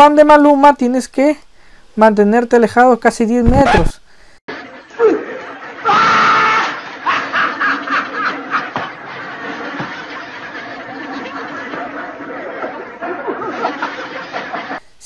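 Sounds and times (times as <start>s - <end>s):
audience laughter: 6.7s - 14.8s.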